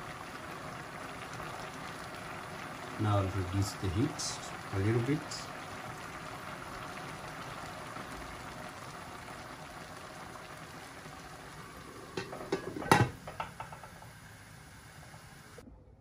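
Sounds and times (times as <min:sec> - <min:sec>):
rice bubbling and hissing: 0:00.0 - 0:15.6
metal lid clanking onto pot: 0:12.2 - 0:13.9.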